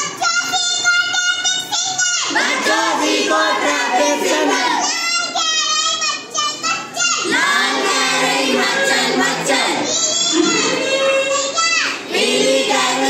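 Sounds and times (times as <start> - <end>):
child's voice leading: 0.0 - 8.2, 9.3 - 13.0
students singing together: 2.3 - 4.8, 7.2 - 13.0.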